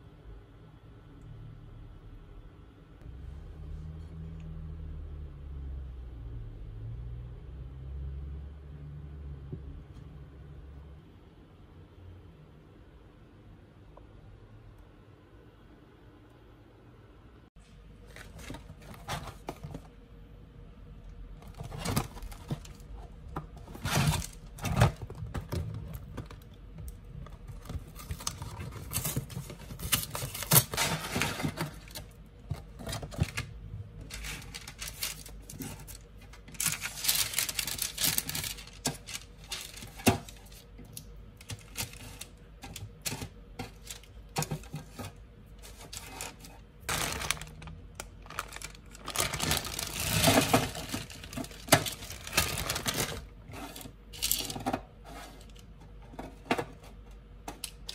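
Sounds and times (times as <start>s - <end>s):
packaging rustling: 21.4s - 40.7s, 41.4s - 53.4s
frozen fillets clacking on tray: 45.9s - 53.3s.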